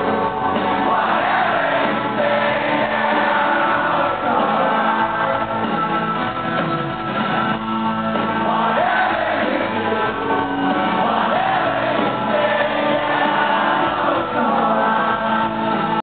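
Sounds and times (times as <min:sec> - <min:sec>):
crowd singing and shouting: 0:00.0 - 0:16.0
live rock band playing: 0:00.0 - 0:16.0
male singer: 0:00.7 - 0:05.7, 0:08.4 - 0:16.0.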